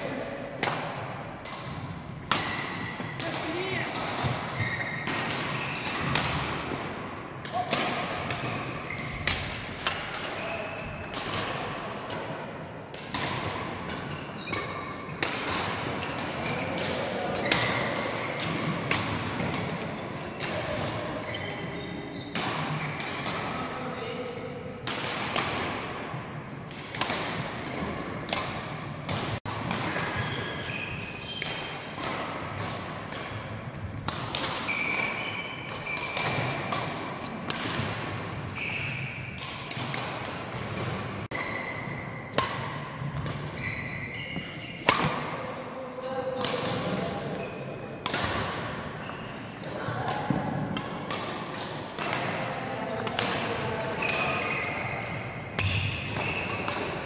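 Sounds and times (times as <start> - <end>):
racket hitting shuttlecock: 0.6 - 21.5, 22.2 - 23.7, 24.8 - 45.5, 46.4 - 47.0, 48.0 - 57.0
shoe squeaks on court floor: 4.5 - 5.9, 21.2 - 23.0, 30.1 - 31.7, 34.6 - 36.7, 38.5 - 39.3, 43.5 - 44.8, 54.0 - 56.7.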